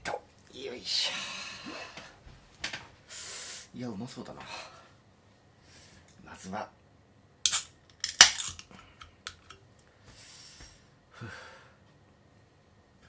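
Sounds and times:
can cracking open with hiss: 0:07.5 - 0:08.7.

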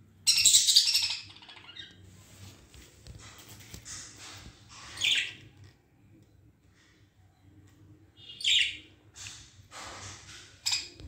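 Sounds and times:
budgerigars chirping and chattering: 0:00.3 - 0:02.0, 0:04.8 - 0:05.4, 0:08.2 - 0:09.4.

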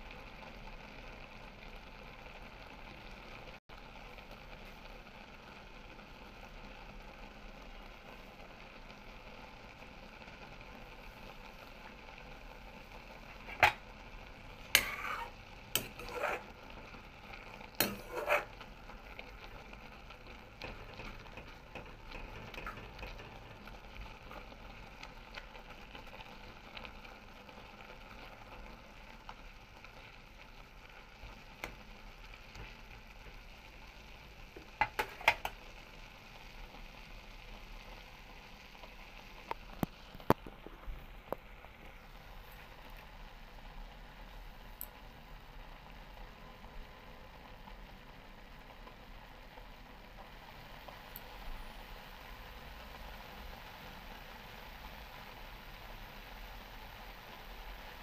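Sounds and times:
faint sizzle in wok: 0:00.0 - 0:58.0
metal spatula scraping wok: 0:13.3 - 0:13.8, 0:14.6 - 0:18.8, 0:20.6 - 0:23.6.

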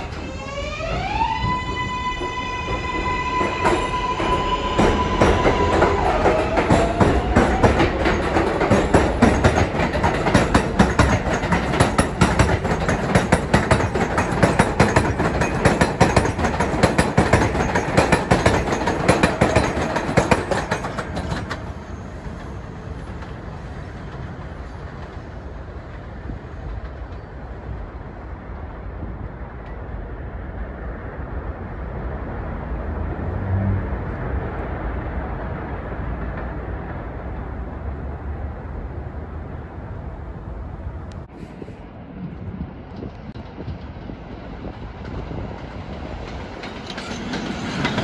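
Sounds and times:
train rumble: 0:00.0 - 0:48.0
train wheels clattering: 0:02.1 - 0:27.4, 0:42.9 - 0:48.0.

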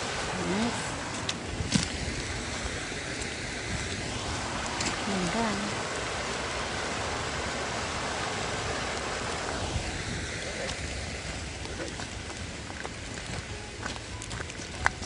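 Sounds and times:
stream rushing over rocks: 0:00.0 - 0:15.0
footsteps on gravel: 0:11.6 - 0:15.0.

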